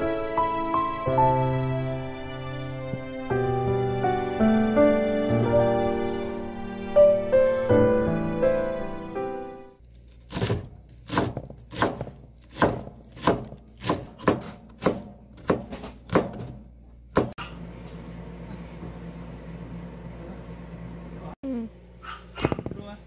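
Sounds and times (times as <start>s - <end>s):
knife slicing on wooden board: 10.0s - 16.5s.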